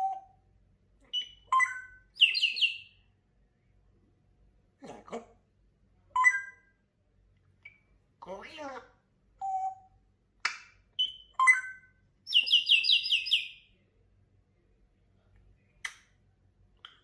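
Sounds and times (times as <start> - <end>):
parrot whistling and chirping: 0.0 - 0.4, 1.1 - 3.0, 6.2 - 6.7, 9.4 - 9.9, 11.0 - 13.6.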